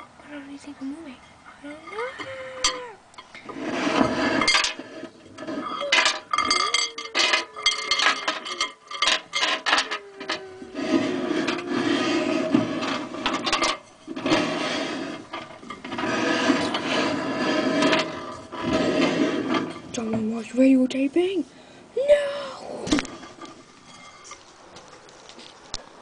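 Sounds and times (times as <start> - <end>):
plastic objects clattering: 2.7 - 20.3.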